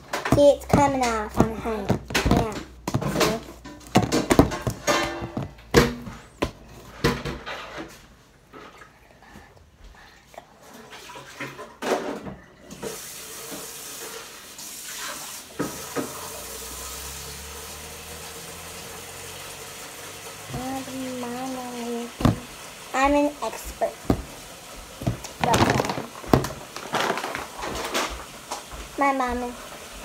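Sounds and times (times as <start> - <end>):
running water hiss: 12.7 - 30.0
slime squelching: 20.5 - 27.8.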